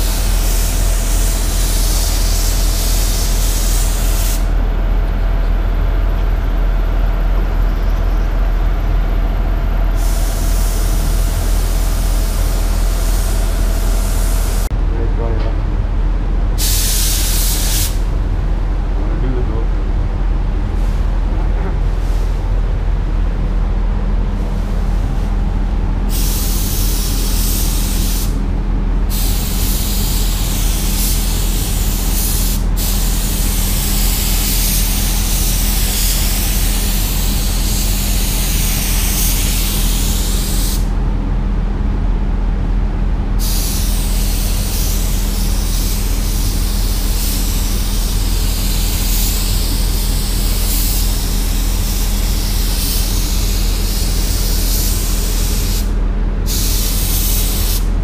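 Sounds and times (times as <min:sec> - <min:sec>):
spray gun hissing: 0:00.0 - 0:04.5, 0:10.0 - 0:14.7, 0:16.6 - 0:18.0, 0:26.1 - 0:28.4, 0:29.1 - 0:40.9, 0:43.4 - 0:55.9, 0:56.5 - 0:57.9
steady low hum: 0:00.0 - 0:58.0.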